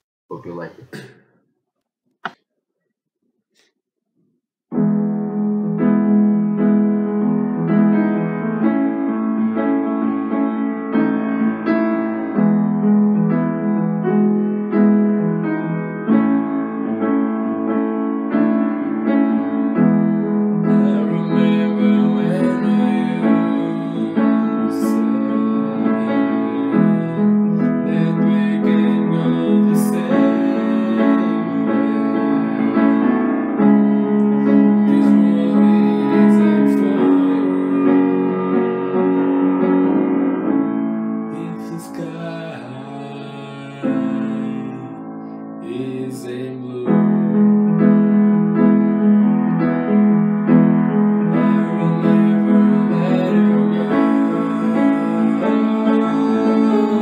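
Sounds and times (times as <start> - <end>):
piano playing repeated chords: 4.7 - 57.0.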